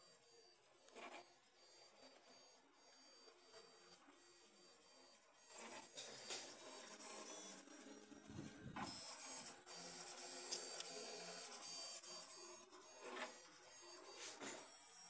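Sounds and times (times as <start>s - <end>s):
stepper motors whirring: 5.4s - 15.0s.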